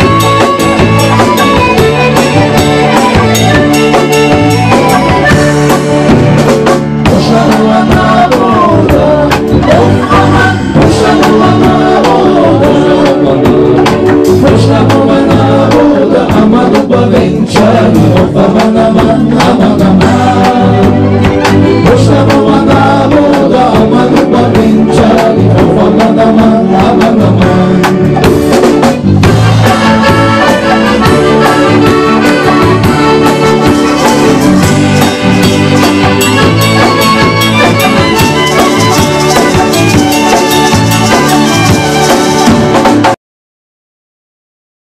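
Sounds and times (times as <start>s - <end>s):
violins: 0.0s - 14.4s, 20.1s - 23.0s, 28.9s - 43.2s
oud and plucked strings: 0.0s - 15.1s, 28.9s - 43.2s
drum kit and percussion: 0.0s - 43.2s.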